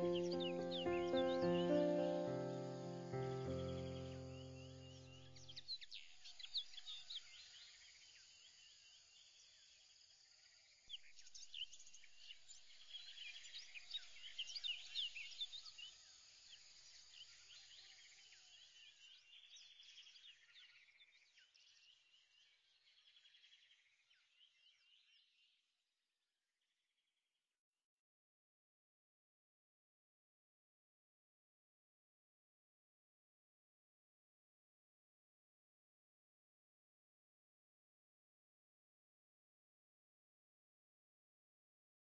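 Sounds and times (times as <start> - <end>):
small birds chirping: 0.0 - 10.1, 10.9 - 25.6.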